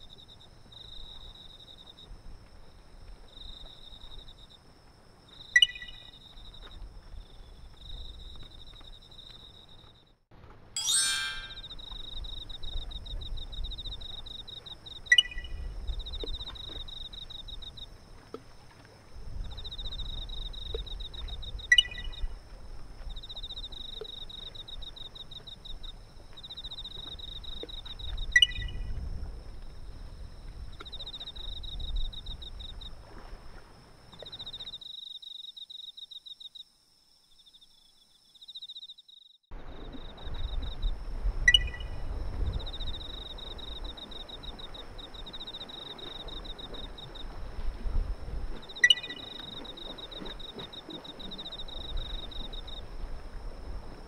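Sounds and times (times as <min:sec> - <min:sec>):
low rumble of wind or surf: 0:00.0 - 0:10.7, 0:12.1 - 0:34.7, 0:39.5 - 0:54.0
short sharp chirp: 0:10.8 - 0:11.8
faint high whine: 0:10.8 - 0:11.9.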